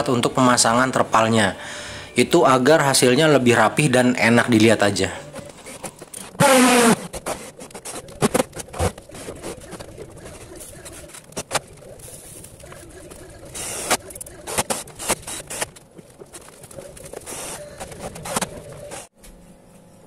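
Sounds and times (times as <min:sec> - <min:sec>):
cordless drill whirring: 0:06.4 - 0:07.0, 0:13.6 - 0:15.7.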